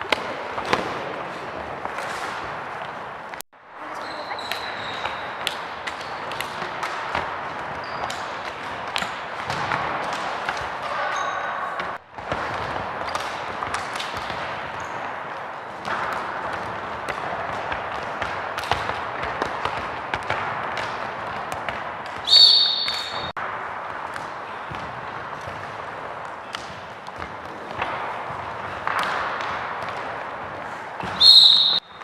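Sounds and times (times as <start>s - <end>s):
shoe squeaks: 3.9s - 5.4s, 7.8s - 8.3s, 10.9s - 11.8s, 22.3s - 23.3s, 31.2s - 31.9s.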